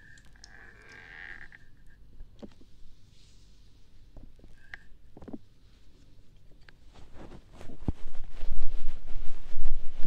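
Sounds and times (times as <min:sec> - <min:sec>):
soft rustle: 0:02.4 - 0:10.0.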